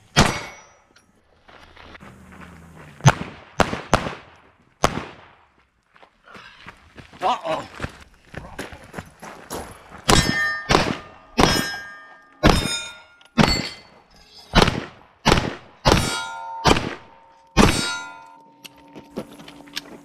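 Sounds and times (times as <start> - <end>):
pistol shots: 3.0 - 5.4, 10.1 - 11.8, 14.5 - 17.9
steel plate ringing: 10.1 - 13.9, 16.0 - 20.0.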